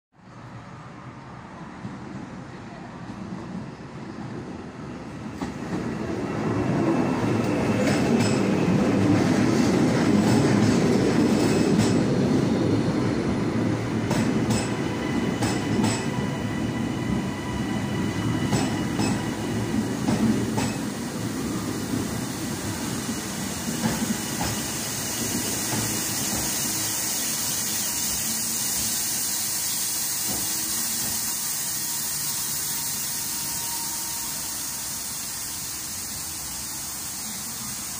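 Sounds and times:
train wheels rumbling: 0:01.7 - 0:37.9
steady hiss: 0:19.9 - 0:37.9.

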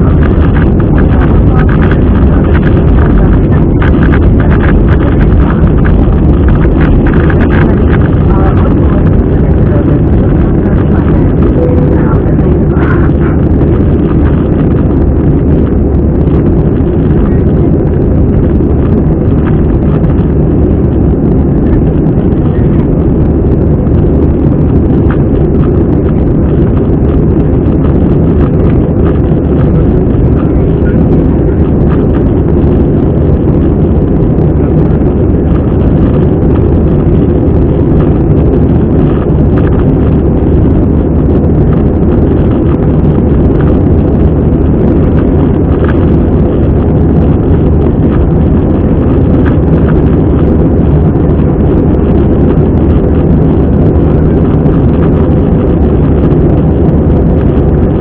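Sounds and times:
airplane cabin engine rumble: 0:00.0 - 0:58.0.

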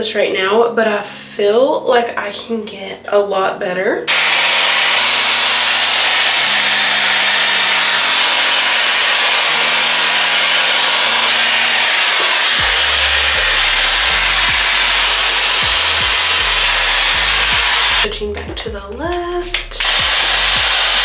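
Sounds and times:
quiet background music: 0:00.0 - 0:04.1, 0:18.0 - 0:21.0
hair styler blowing air: 0:04.1 - 0:18.1, 0:19.5 - 0:21.0.

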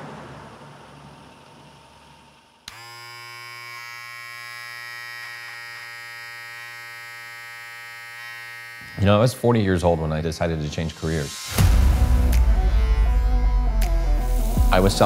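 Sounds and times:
electric hair clippers buzzing: 0:02.6 - 0:09.5.

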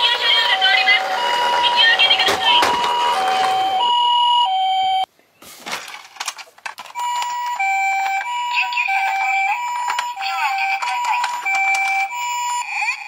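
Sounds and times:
toy two-tone siren: 0:00.0 - 0:05.0, 0:07.0 - 0:13.0
toy handling clicks and rustles: 0:05.6 - 0:12.6.

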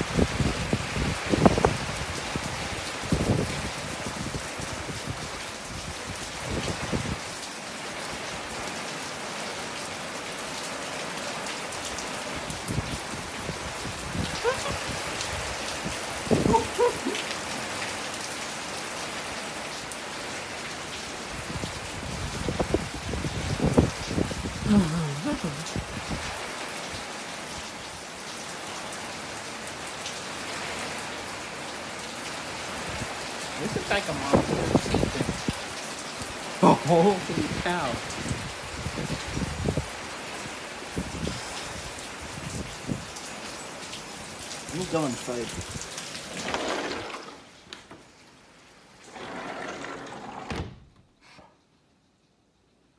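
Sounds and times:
heavy rain: 0:00.0 - 0:50.7.

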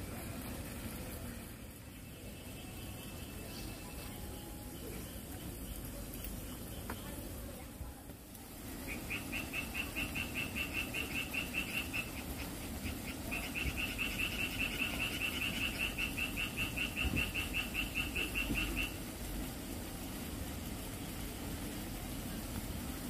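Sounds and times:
animal high chirps: 0:08.8 - 0:19.0.

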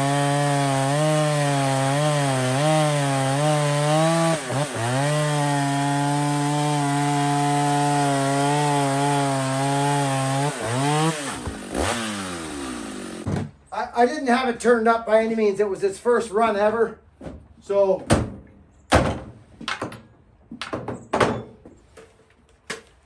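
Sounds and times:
chainsaw cutting log: 0:00.0 - 0:13.5.

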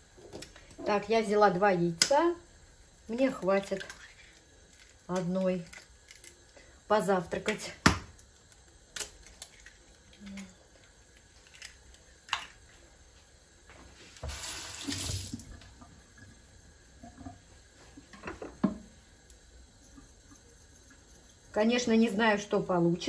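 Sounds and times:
eggshell cracking: 0:03.7 - 0:06.6, 0:07.4 - 0:12.7
kitchen tap gushing: 0:14.2 - 0:22.2.

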